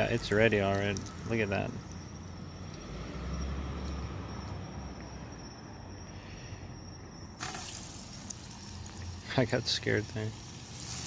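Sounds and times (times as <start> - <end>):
camp stove hissing and rumbling: 7.2 - 11.0
fish sizzling in hot oil: 7.4 - 11.0.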